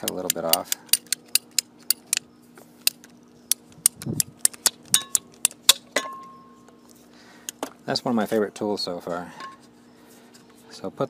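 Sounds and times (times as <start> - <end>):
ratcheting pipe cutter clicking: 0.0 - 2.2.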